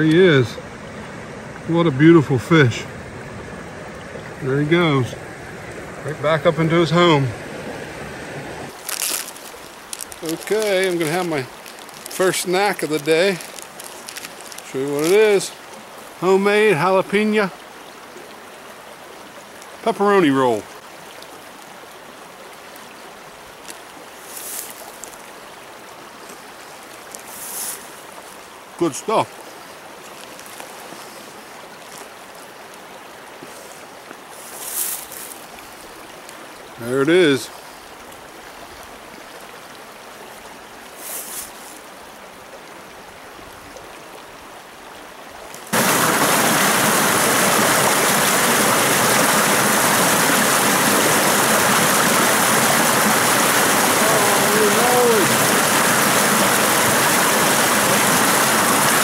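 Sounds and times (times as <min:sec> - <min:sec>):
mountain stream flowing: 0:00.0 - 0:59.0
scratchy rustle: 0:08.7 - 0:15.2, 0:24.2 - 0:25.2, 0:27.2 - 0:27.9, 0:34.4 - 0:35.4, 0:41.0 - 0:41.8
water tumbling over rocky cascade: 0:08.7 - 0:21.8, 0:22.4 - 0:37.5, 0:45.4 - 0:59.0.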